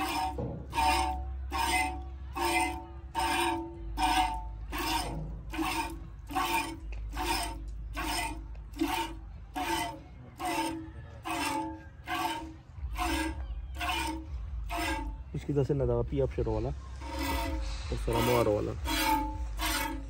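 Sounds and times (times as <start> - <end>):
milk squirting into metal pail: 0.0 - 15.2.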